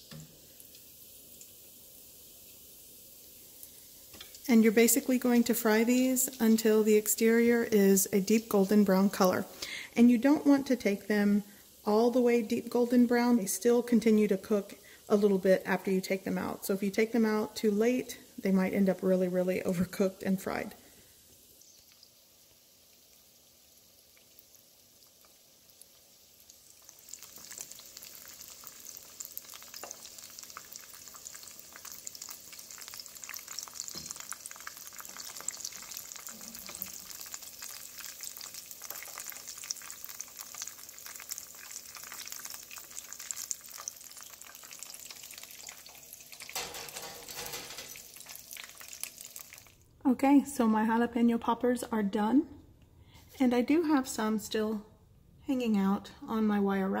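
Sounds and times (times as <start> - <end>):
food deep-frying in oil: 0.0 - 49.8
scrape on wire rack: 46.6 - 48.0.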